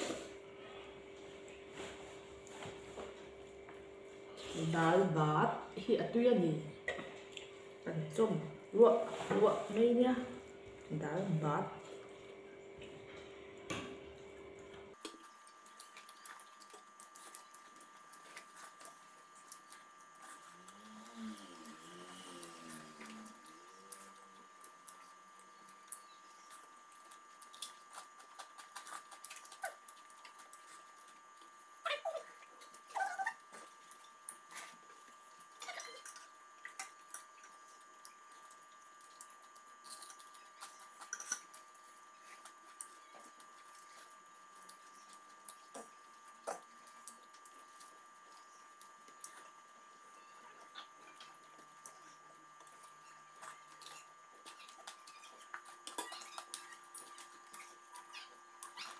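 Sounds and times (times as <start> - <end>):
faint steady hum: 0.0 - 58.9
hands mixing food clicks: 12.8 - 20.8.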